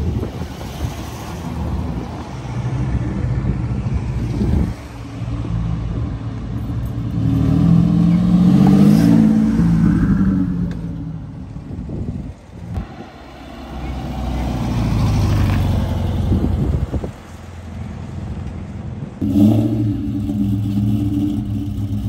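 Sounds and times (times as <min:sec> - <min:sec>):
car engine pulling away: 0:06.4 - 0:11.6, 0:13.3 - 0:18.5, 0:19.2 - 0:22.0
pickup truck engine passing: 0:12.8 - 0:18.4.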